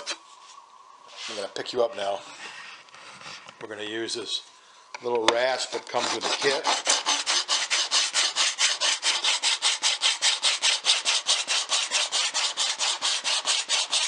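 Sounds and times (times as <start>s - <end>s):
hand rasp scraping wood: 5.7s - 14.0s.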